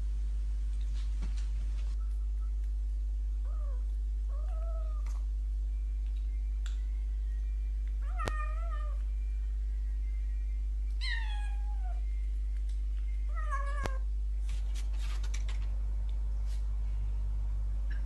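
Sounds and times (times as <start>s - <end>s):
steady low hum: 0.0s - 18.0s
cat meowing: 11.0s - 12.0s.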